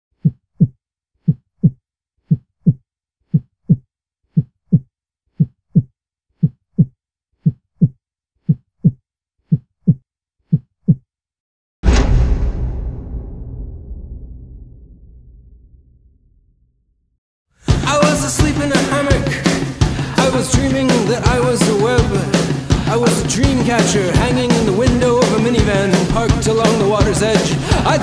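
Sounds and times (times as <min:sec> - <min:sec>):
deep ringing impact: 0:11.8 - 0:16.7.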